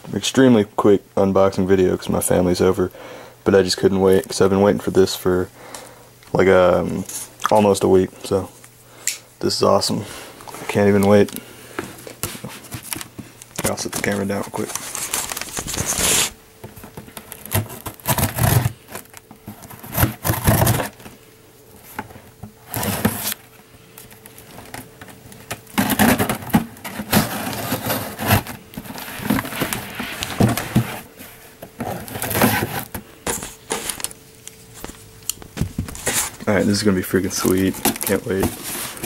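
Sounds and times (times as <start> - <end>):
cardboard box scraping and rustling: 19.5 - 21.0, 22.7 - 23.4, 25.8 - 34.0, 37.4 - 39.0.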